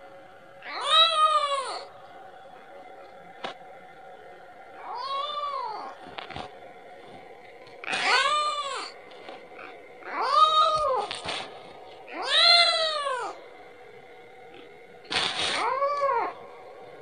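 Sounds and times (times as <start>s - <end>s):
kitten meowing: 12.1s - 13.4s.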